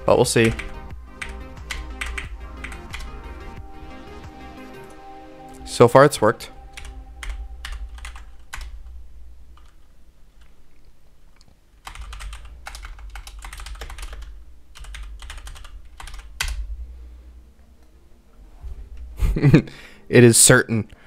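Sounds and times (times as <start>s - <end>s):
typing on computer keyboard: 0.4s - 3.2s, 6.8s - 8.8s, 11.8s - 16.6s.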